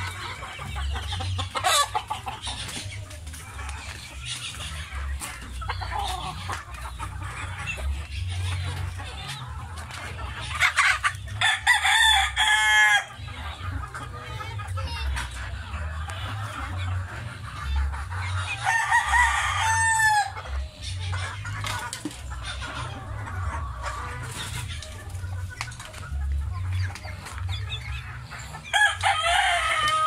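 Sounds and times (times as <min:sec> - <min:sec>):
roosters crowing: 0:00.0 - 0:09.1, 0:10.4 - 0:13.6, 0:18.4 - 0:25.0, 0:27.5 - 0:30.0
hens clucking: 0:00.0 - 0:30.0.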